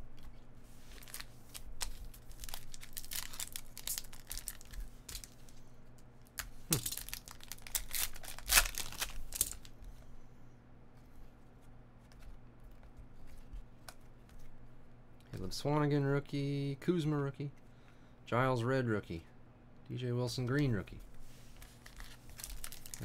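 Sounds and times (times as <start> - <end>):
foil pack crinkling and tearing: 0.9 - 5.3, 6.7 - 9.7, 21.6 - 23.0.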